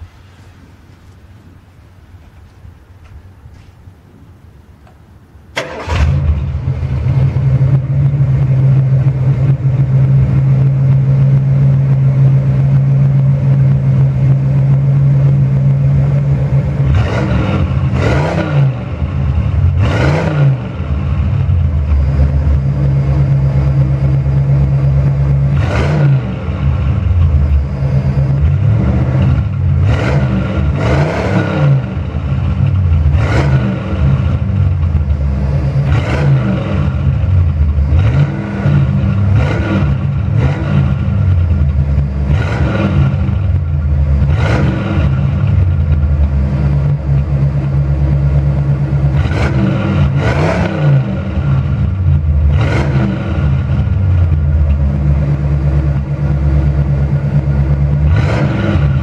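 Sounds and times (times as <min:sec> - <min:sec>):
car engine idling and revving: 0:00.0 - 0:59.0.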